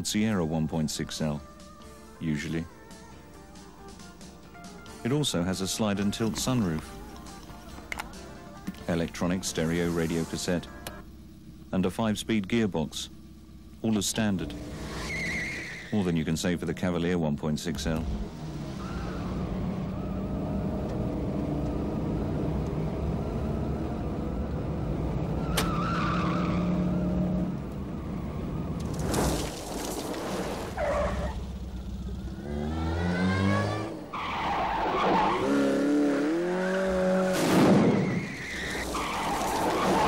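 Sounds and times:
car engines revving high: 5.4s - 40.0s
tyres skidding and squealing: 8.8s - 11.6s, 13.1s - 16.9s, 17.6s - 40.0s.

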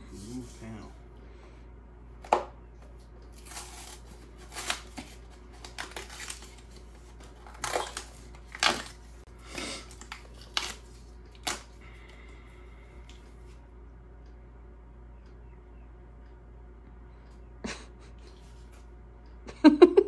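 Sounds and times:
cardboard tearing and scraping: 3.3s - 11.7s.

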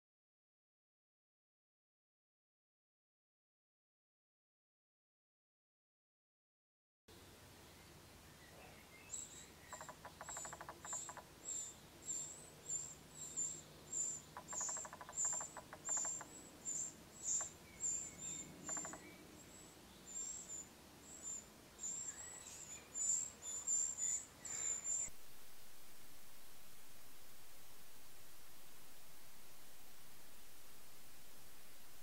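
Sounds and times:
nestlings peeping: 7.7s - 25.1s.

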